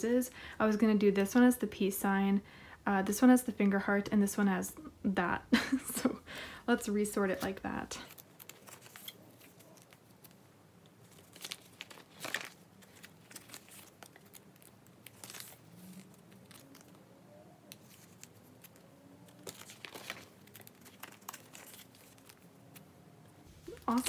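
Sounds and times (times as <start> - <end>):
plastic pages rustling: 7.1 - 24.0
cards sliding in plastic sleeves: 7.3 - 10.4, 11.0 - 17.0, 17.6 - 22.9.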